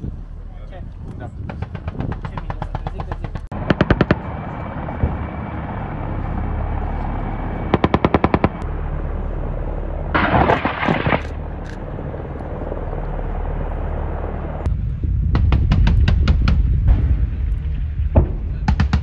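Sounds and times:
helicopters hovering: 0.0 - 19.0
machine-gun fire: 1.5 - 4.2, 7.7 - 8.6, 10.2 - 11.3.

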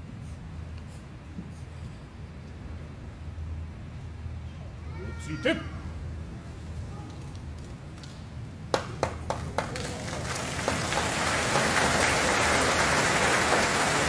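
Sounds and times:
audience applause: 9.0 - 14.0.

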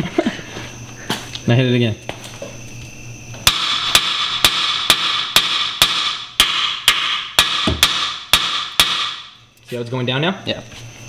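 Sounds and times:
hammer striking steel: 3.4 - 9.3.

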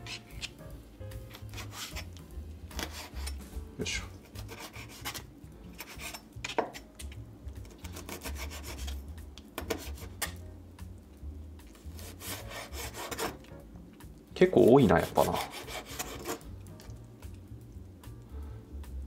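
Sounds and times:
knife chopping on cutting board: 9.6 - 10.4, 12.0 - 13.4.

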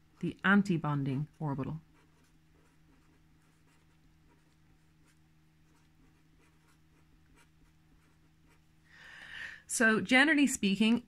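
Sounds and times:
low steady hum: 0.0 - 11.0
pen scratching on paper: 1.1 - 8.7.

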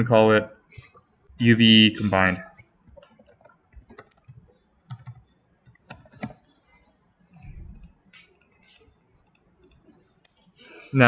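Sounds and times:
keyboard typing: 2.0 - 10.5.

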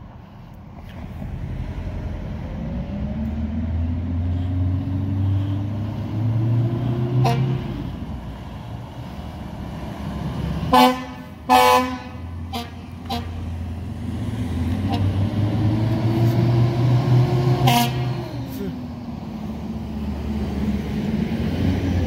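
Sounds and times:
low rumble: 0.0 - 6.8
heavy engine accelerating: 0.0 - 22.0.

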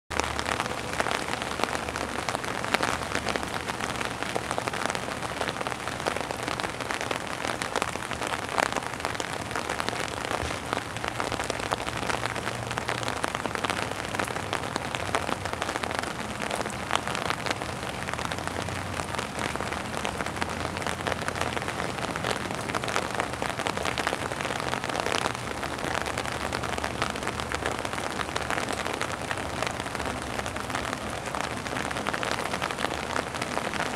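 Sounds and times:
rain on wet hard surface: 0.1 - 33.9.

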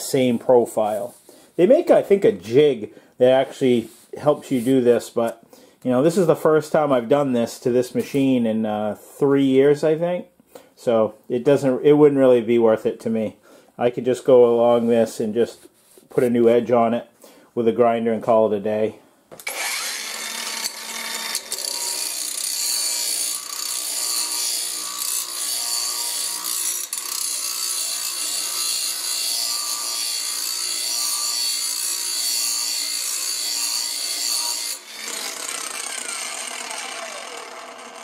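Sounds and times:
angle grinder grinding metal: 19.4 - 38.0.

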